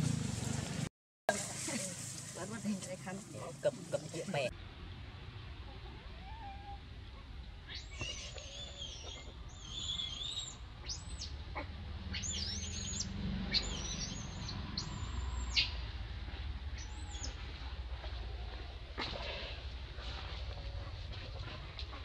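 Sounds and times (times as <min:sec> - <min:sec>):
low steady rumble: 0:00.0 - 0:22.0
high-pitched chirping calls: 0:07.7 - 0:11.4, 0:12.1 - 0:15.8, 0:16.8 - 0:17.4.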